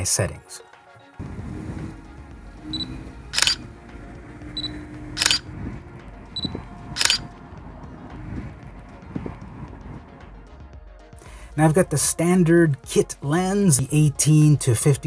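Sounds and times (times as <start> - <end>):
camera autofocus beep: 2.7 - 3.6, 4.5 - 5.5, 6.4 - 7.3
camera shutter and mirror clack: 2.7 - 3.7, 4.5 - 5.5, 6.4 - 7.3.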